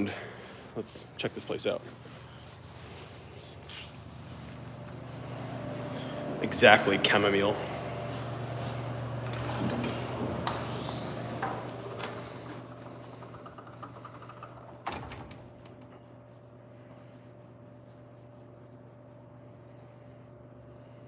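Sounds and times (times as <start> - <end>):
steady low hum: 0.0 - 21.0
glass door handling and clicks: 9.1 - 16.1.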